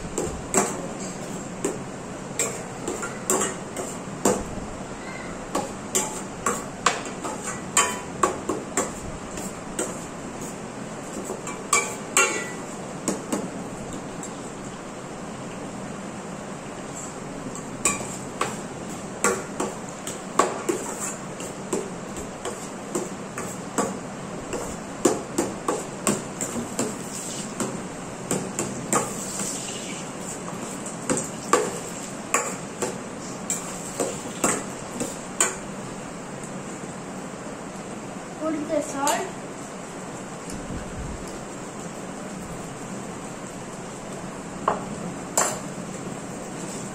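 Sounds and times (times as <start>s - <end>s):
metal spoon scraping a pan: 5.9s - 8.1s, 11.2s - 12.7s, 20.6s - 21.6s, 33.2s - 35.6s.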